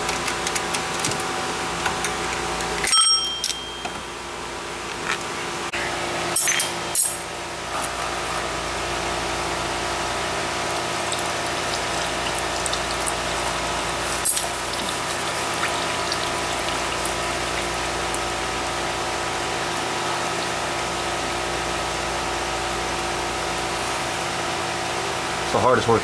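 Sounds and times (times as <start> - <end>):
oil draining into pan: 10.6 - 21.5.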